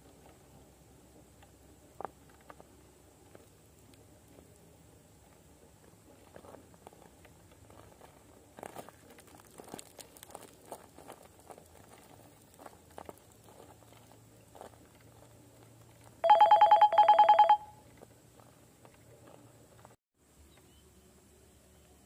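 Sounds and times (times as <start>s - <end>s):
electronic trilling ring: 16.2s - 17.8s.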